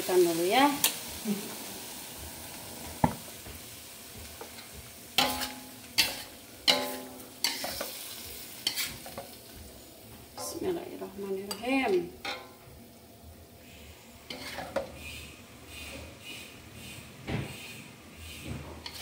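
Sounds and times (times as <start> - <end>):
faint sizzle: 0.0 - 19.0
spatula clanking against wok: 4.2 - 8.0, 11.5 - 12.6
metal spatula scraping a wok: 4.4 - 9.4, 11.4 - 12.6, 13.6 - 19.0.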